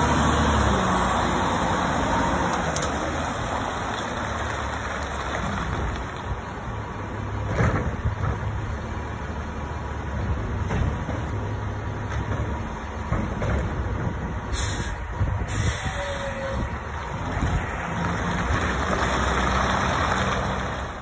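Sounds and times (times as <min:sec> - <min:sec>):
air brakes hissing: 0:14.5 - 0:16.7.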